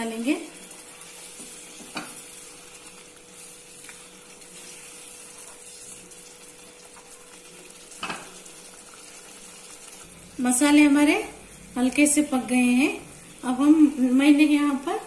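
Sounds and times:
gravy sizzling and bubbling: 0.0s - 15.0s
spatula stirring in a pan: 0.5s - 10.1s.

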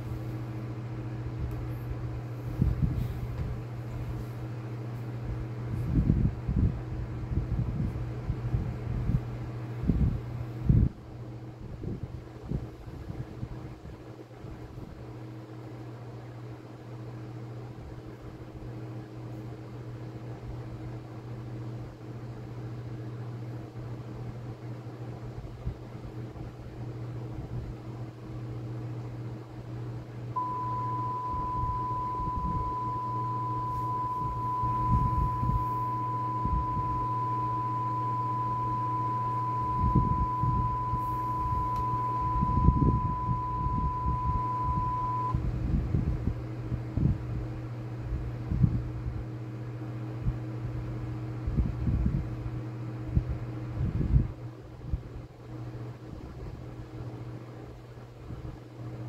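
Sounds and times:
low moaning hum: 30.2s - 47.5s
steady high beep tone: 30.4s - 45.4s.

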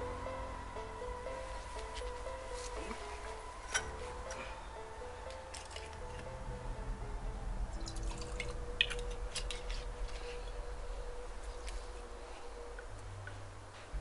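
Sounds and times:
liquid dripping into a glass: 7.8s - 9.2s.

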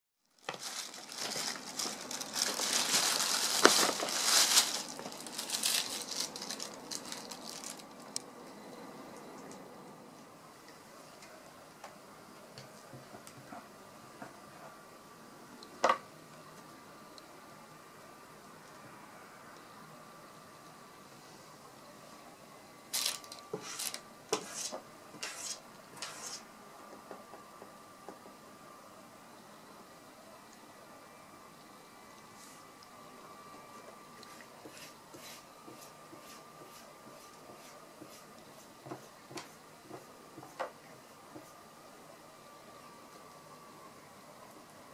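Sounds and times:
paper wrapping crinkling: 0.2s - 8.2s, 22.9s - 24.0s
cat paw scraping paper and wood: 23.0s - 26.4s.

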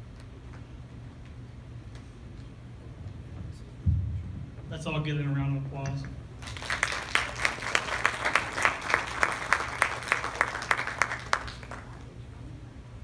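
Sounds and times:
audience applauding: 6.4s - 12.2s.

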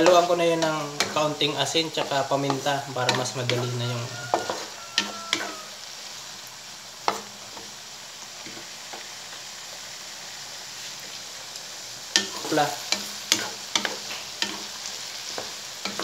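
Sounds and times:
spatula scraping pan: 0.0s - 5.7s
vegetables sizzling in oil: 0.0s - 16.0s
spatula tapping metal: 12.2s - 14.6s.

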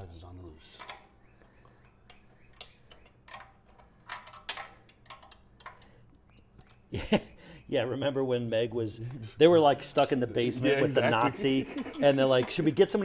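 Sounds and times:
hand tools clicking on metal: 2.0s - 6.0s.

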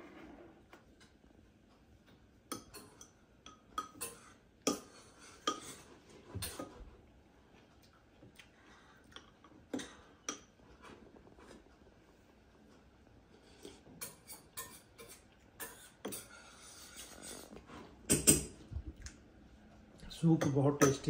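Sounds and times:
spoons clinking against bowls: 2.5s - 6.6s, 20.3s - 21.0s.

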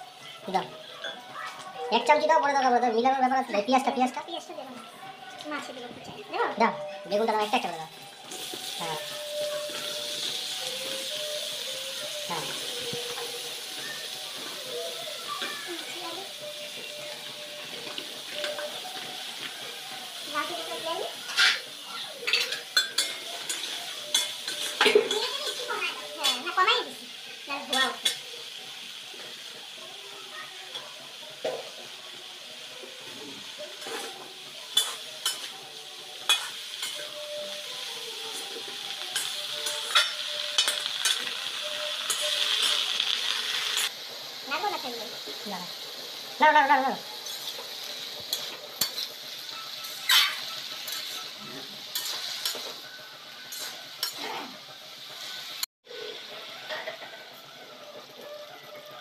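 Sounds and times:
vegetables sizzling in a wok: 0.0s - 59.0s
metal spatula scraping a pan: 21.2s - 26.4s, 33.6s - 35.6s, 36.2s - 43.9s, 47.2s - 54.4s
spatula clinking against pan: 22.2s - 25.6s.

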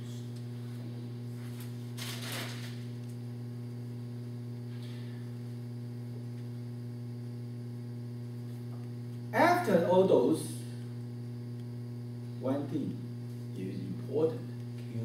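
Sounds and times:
low electrical mains hum: 0.0s - 15.0s
paper rustle: 1.5s - 2.8s.

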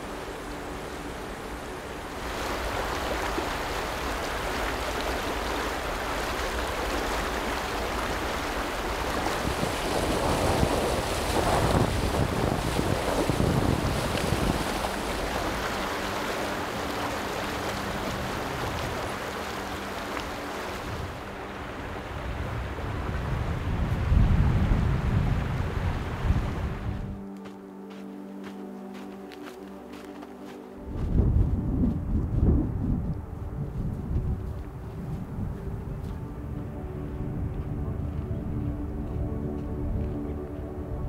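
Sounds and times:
wind buffeting microphone: 0.0s - 27.2s, 30.8s - 41.0s
rushing river water: 0.0s - 31.4s
legs wading and splashing: 2.1s - 22.0s.

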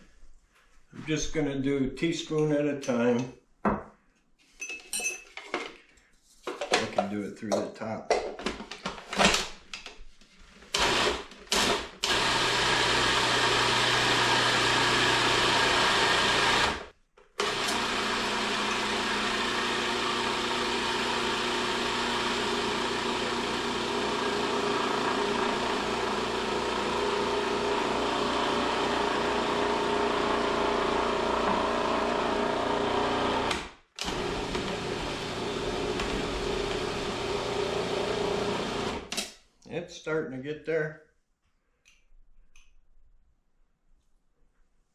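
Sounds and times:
food processor churning dough: 10.8s - 39.1s.

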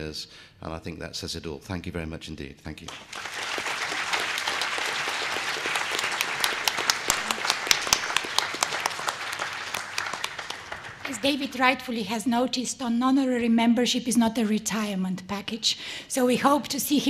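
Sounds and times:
sharp loud claps close by: 2.8s - 11.3s
audience applauding: 2.8s - 11.8s.

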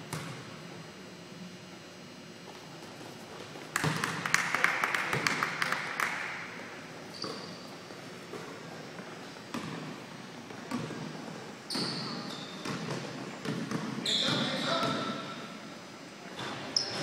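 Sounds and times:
basketball bouncing: 3.8s - 4.4s, 9.5s - 9.9s, 10.7s - 11.1s, 12.6s - 15.1s
shoe squeaks on gym floor: 7.1s - 7.7s, 11.7s - 12.8s, 14.0s - 15.2s, 16.4s - 17.0s.

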